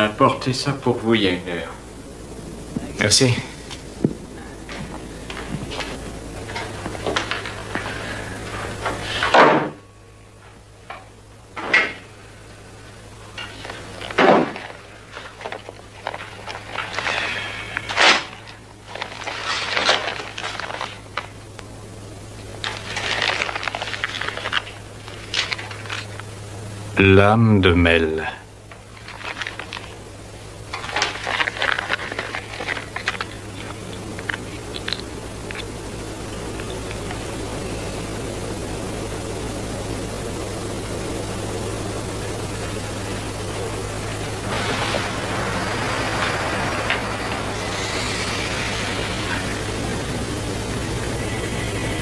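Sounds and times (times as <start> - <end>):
even hiss: 0.0 - 52.0
steady low hum: 0.0 - 52.0
paper envelope tearing and rustling: 13.4 - 21.4, 22.6 - 26.2, 28.9 - 30.0, 30.7 - 35.6, 44.0 - 50.1.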